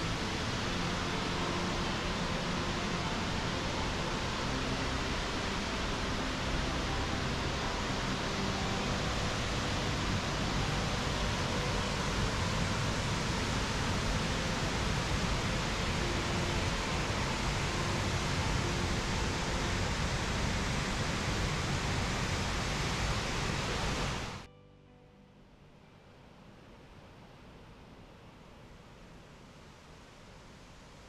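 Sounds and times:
waterfall rushing: 0.0s - 24.5s.

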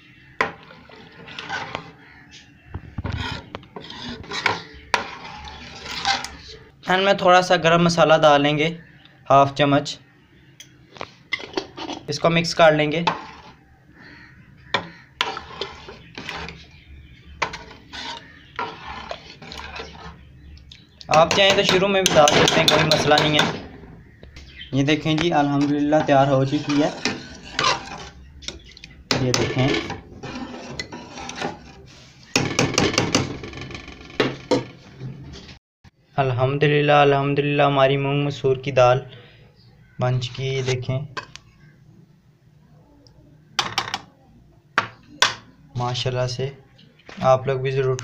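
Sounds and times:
spoon scraping and knocking pot: 0.4s - 2.0s, 2.8s - 6.4s, 13.0s - 13.6s, 14.7s - 16.7s, 17.3s - 20.3s, 21.1s - 24.3s, 25.1s - 34.7s
spoon stirring thick food in pot: 0.4s - 6.6s, 11.2s - 13.6s, 14.6s - 33.2s.

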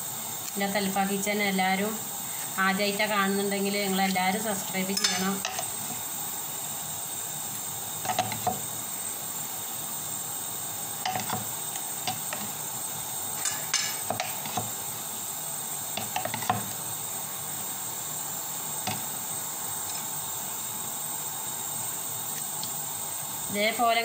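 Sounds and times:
steady hiss: 0.0s - 24.0s
knife tapping ceramic plate: 5.0s - 5.6s.

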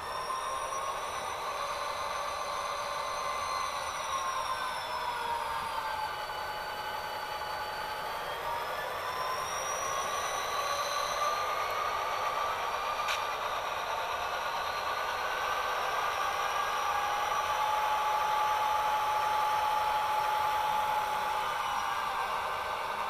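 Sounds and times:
diesel engine sound from small speaker: 0.0s - 23.0s
whining tones: 0.0s - 23.0s.

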